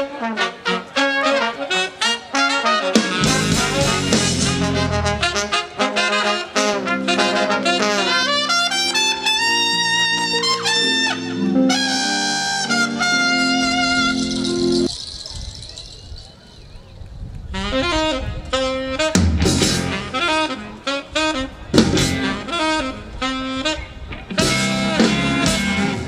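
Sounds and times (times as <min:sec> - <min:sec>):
brass band playing: 0:00.0 - 0:14.9, 0:17.6 - 0:26.0
drums: 0:02.5 - 0:05.7, 0:19.0 - 0:20.2, 0:21.7 - 0:22.8, 0:24.1 - 0:26.0.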